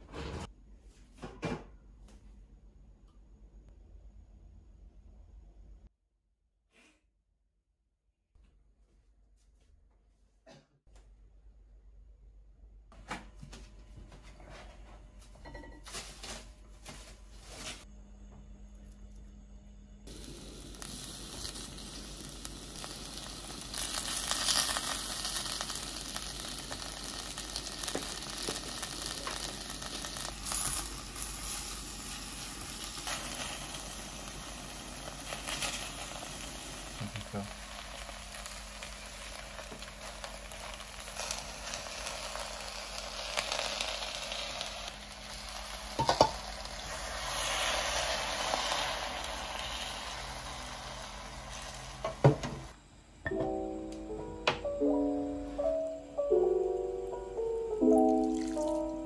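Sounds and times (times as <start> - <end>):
beef sizzling in a pot: 20.1 - 52.8, 57.8 - 59.0.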